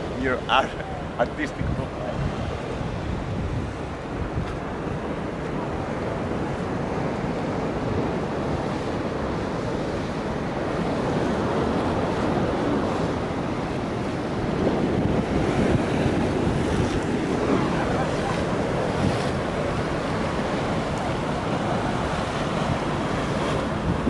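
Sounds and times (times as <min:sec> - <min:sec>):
sea surf: 0:00.0 - 0:24.0
strong wind buffeting microphone: 0:00.0 - 0:24.0.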